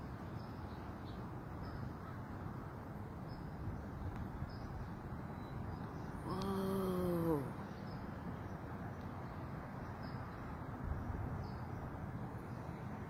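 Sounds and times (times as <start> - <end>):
wind: 0.0 - 13.0
faint bird chirps: 0.3 - 8.6.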